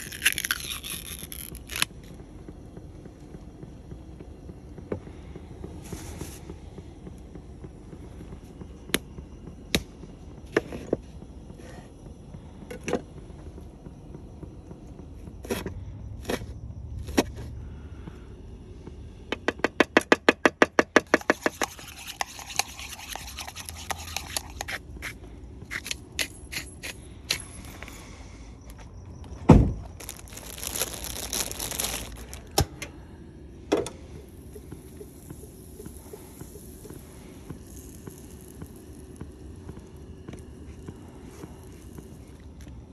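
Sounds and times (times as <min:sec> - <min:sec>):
hiss: 0:04.8 - 0:09.0, 0:33.0 - 0:42.9
loud thump: 0:29.4 - 0:29.9.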